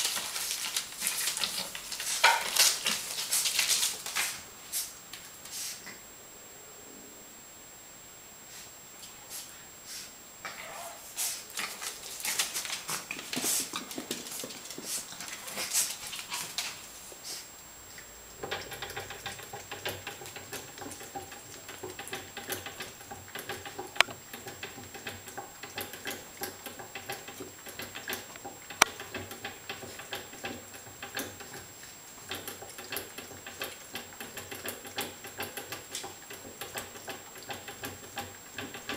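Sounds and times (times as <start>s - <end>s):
puppy gnawing with clicking teeth: 0.0s - 4.4s, 11.5s - 16.9s, 17.9s - 38.9s
faint steady hum: 0.0s - 38.9s.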